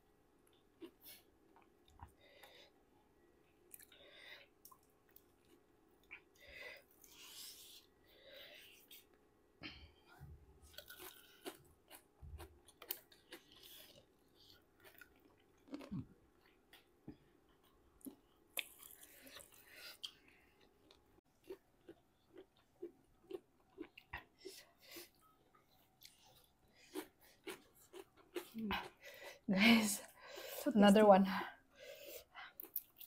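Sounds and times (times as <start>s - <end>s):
mouth chewing and crunching: 10.6s - 29.2s, 32.4s - 33.0s.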